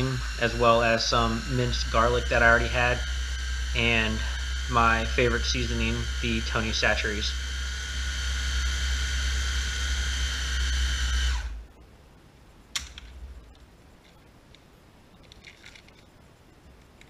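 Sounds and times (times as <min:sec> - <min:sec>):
blender motor running: 0:00.0 - 0:11.6.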